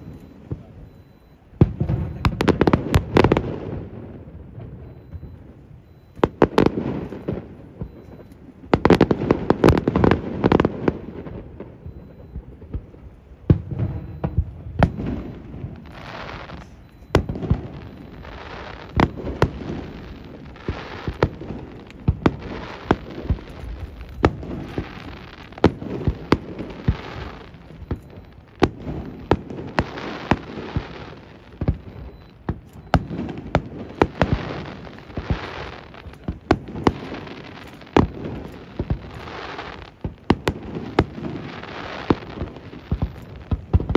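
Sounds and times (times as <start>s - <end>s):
firework bangs: 0.0s - 43.9s
firework hiss: 34.0s - 43.9s.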